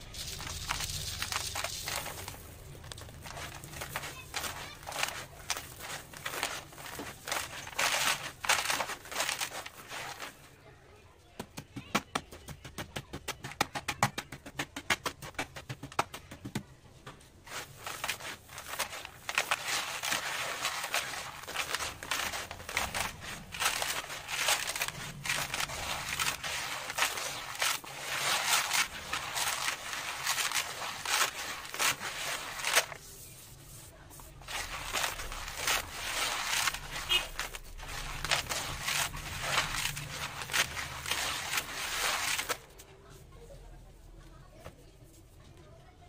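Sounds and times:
hands crunching dry dirt: 0.0s - 10.4s, 17.5s - 33.0s, 34.2s - 42.6s
rustling grains: 0.0s - 10.5s, 17.4s - 42.7s.

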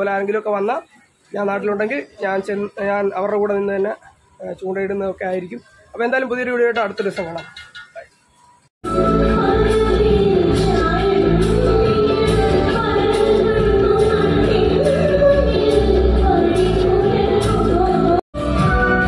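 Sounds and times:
live band with keyboard and percussion: 6.6s - 19.0s
woman singing into a microphone: 8.9s - 19.0s.

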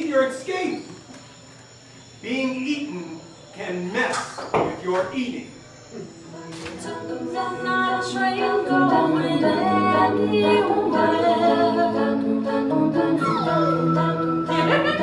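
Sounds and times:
voices singing a cappella: 4.8s - 15.0s.

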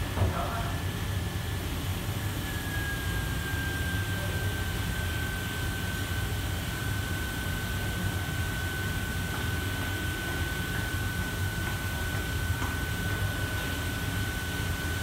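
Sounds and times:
ventilation hum and air rush: 0.0s - 15.0s
thin high whine: 2.1s - 6.4s.

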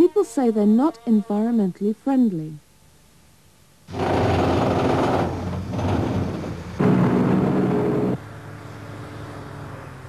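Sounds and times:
rubbish load sliding out: 3.9s - 8.2s
truck engine running: 3.9s - 8.3s.

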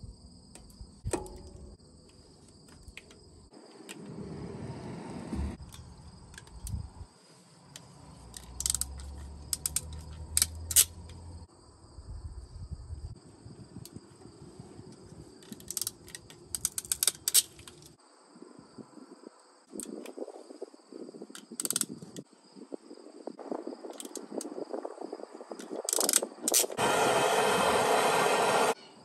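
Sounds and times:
wind rumble on microphone: 4.0s - 7.1s, 11.7s - 15.3s, 18.4s - 28.7s
ratcheting wire crimper clicking: 8.3s - 11.2s, 15.4s - 17.9s, 21.4s - 22.2s, 25.6s - 26.8s.

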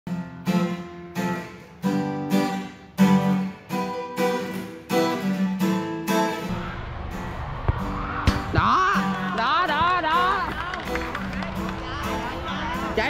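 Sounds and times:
acoustic guitar strumming chords: 0.1s - 13.0s.

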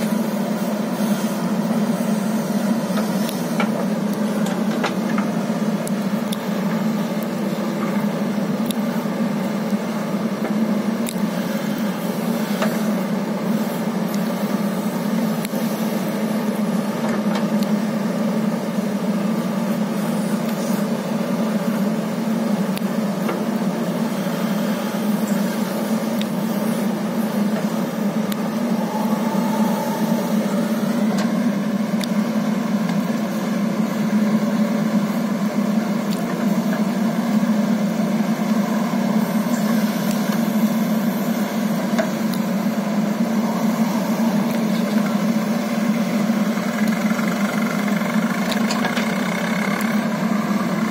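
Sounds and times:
diesel engine running: 0.0s - 50.9s
backhoe digging soil: 46.4s - 50.9s.

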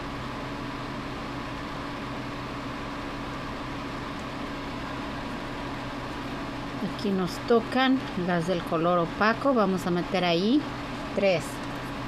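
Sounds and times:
machine humming and hissing: 0.0s - 12.0s.

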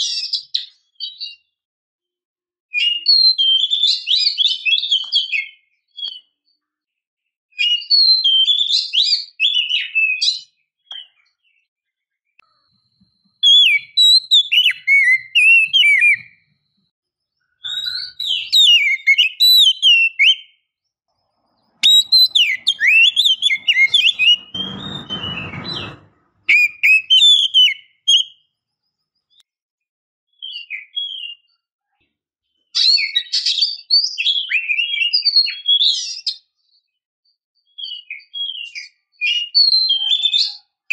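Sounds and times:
bird singing whistled notes: 7.6s - 11.7s, 12.5s - 16.8s, 17.4s - 20.7s, 21.6s - 25.9s, 26.5s - 28.5s, 37.7s - 40.6s.

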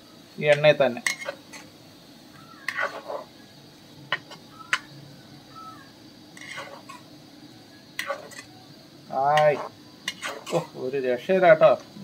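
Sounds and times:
masala frying in oil: 0.0s - 12.0s
ladle stirring and scraping pan: 0.5s - 1.7s, 2.6s - 3.3s, 4.1s - 4.8s, 6.3s - 7.1s, 8.0s - 8.5s, 9.3s - 10.7s.

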